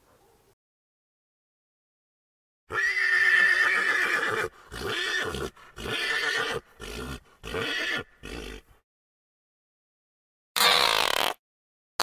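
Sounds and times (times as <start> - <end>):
horse whinnying: 2.7 - 8.6.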